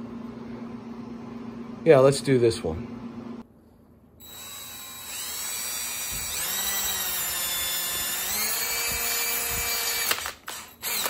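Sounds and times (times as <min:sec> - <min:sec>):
cordless drill whine: 0:04.2 - 0:11.0.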